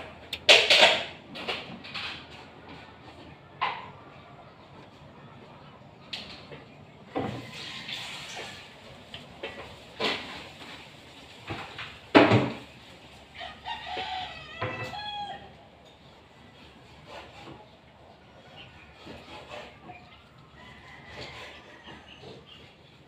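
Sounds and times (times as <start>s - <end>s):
sharp knocks and thumps: 11.5s - 12.7s
rooster crowing: 13.4s - 15.6s, 20.3s - 22.5s.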